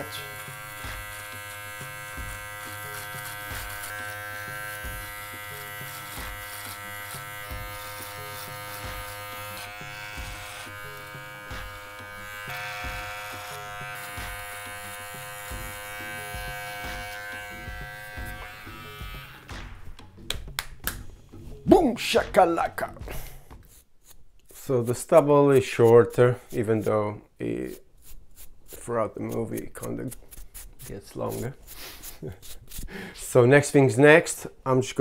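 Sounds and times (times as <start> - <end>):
electric beard trimmer buzzing: 0.0 - 19.9.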